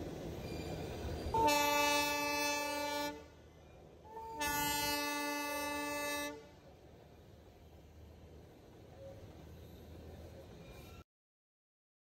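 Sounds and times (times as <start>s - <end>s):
diesel locomotive horn blasts: 1.3s - 3.4s, 4.0s - 6.6s.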